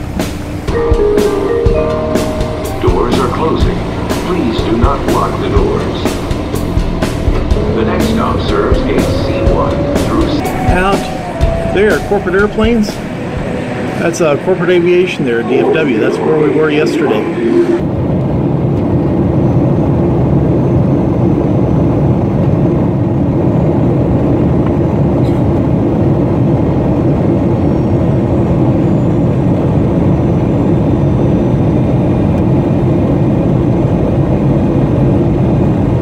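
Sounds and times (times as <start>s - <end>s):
jet engine and airflow in cabin: 0.0s - 36.0s
steady low hum: 1.9s - 15.4s.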